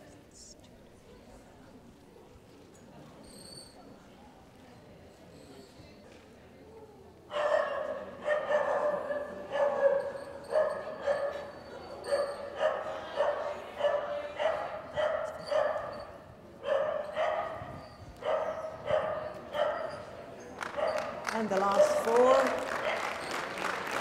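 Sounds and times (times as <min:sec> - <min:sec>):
dog barking: 0:07.3 - 0:16.0, 0:16.6 - 0:20.1, 0:20.7 - 0:21.2, 0:22.8 - 0:23.3.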